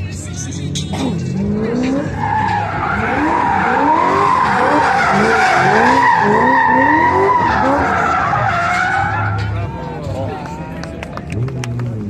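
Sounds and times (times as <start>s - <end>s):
car engine revving: 0.0s - 12.0s
tyres squealing: 1.4s - 9.6s.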